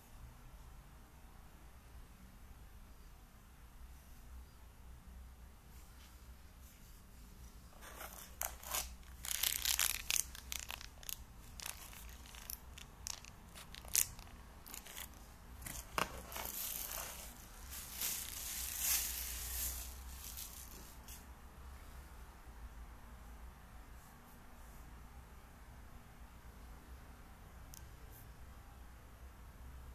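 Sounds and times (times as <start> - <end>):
plastic packaging crinkling: 7.8 - 21.0.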